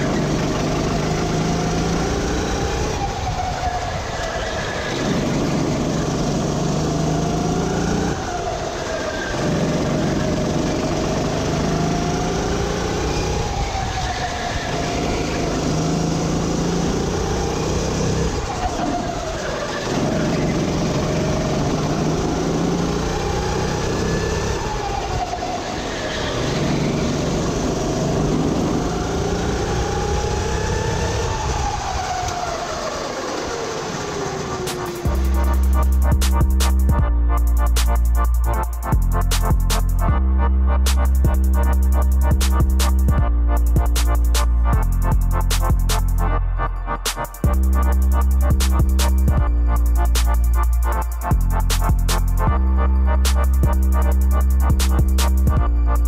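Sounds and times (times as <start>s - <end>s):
kart engine revving: 0.0s - 37.0s.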